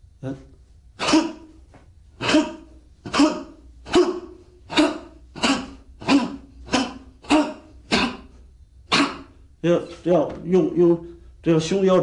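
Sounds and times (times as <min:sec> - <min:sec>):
forceful grunting exhalations: 0:01.0 - 0:01.6, 0:02.2 - 0:09.4.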